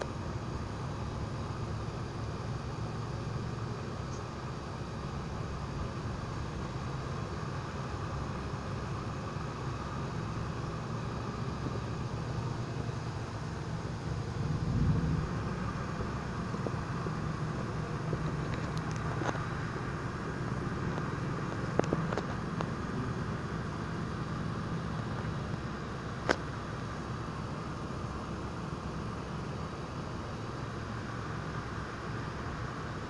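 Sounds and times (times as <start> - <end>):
steady rain hiss: 0.0 - 33.0
low thunder rumble: 14.1 - 18.5.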